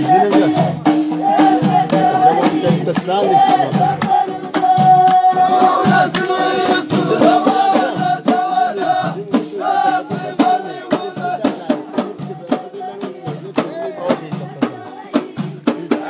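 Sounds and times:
frame drums beating: 0.0 - 16.0
group chanting: 0.0 - 16.0
hand claps: 5.0 - 5.2, 5.9 - 6.4.

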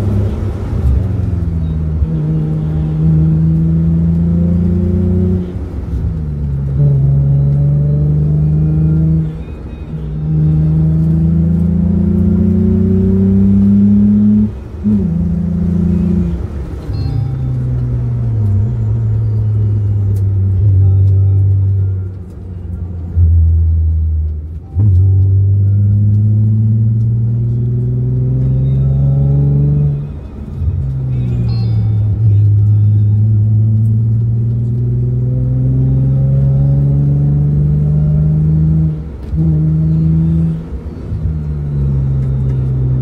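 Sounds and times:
car engine accelerating: 0.0 - 43.0.

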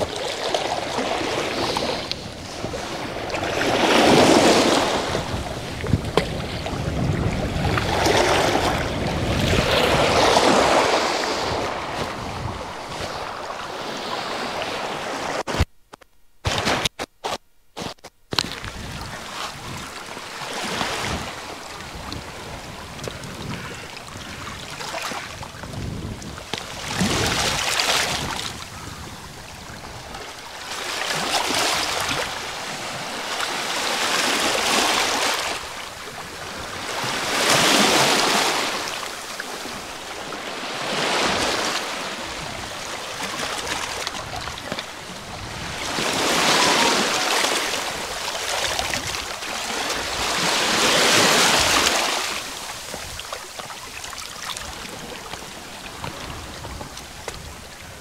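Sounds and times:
waves washing over rocks: 0.0 - 15.6, 18.4 - 58.0.

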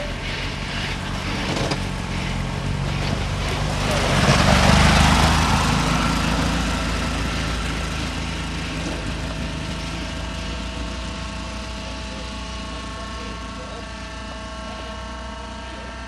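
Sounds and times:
off-road buggy engine running hard: 0.0 - 16.0.

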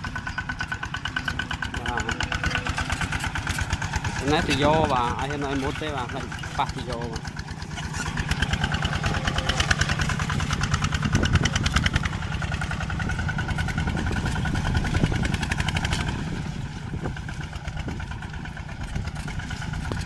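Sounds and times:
tractor diesel engine under load: 0.0 - 20.0.

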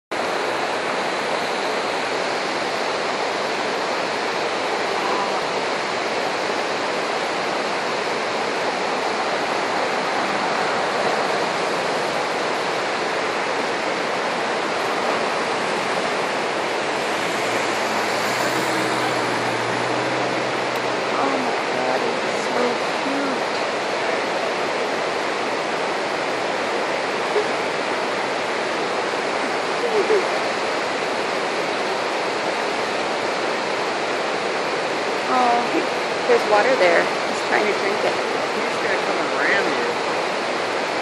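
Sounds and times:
flowing water rushing: 0.1 - 41.0
low hum: 7.7 - 30.2.

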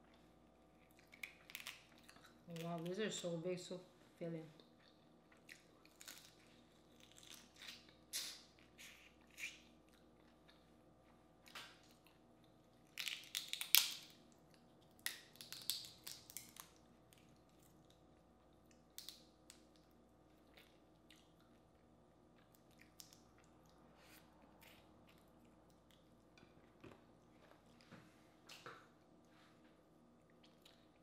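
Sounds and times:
chewing: 20.3 - 27.8, 30.2 - 31.0.

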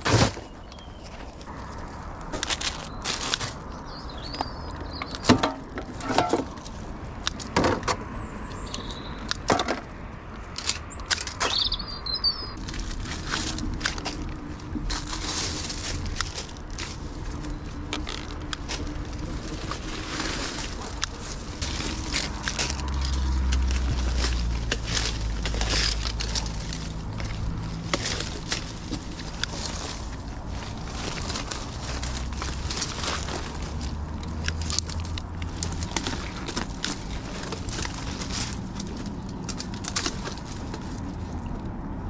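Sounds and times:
rustling leaves: 0.0 - 42.0
bird chirps: 3.8 - 5.3, 8.1 - 9.2, 10.8 - 12.6.

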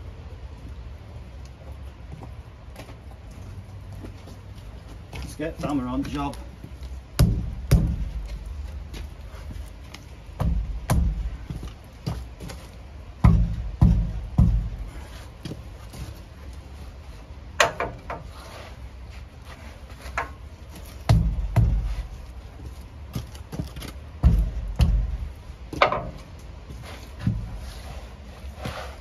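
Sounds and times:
hammer thuds on metal wheel: 7.2 - 8.3, 10.4 - 11.4, 13.2 - 15.0, 21.0 - 22.1, 24.2 - 26.2.

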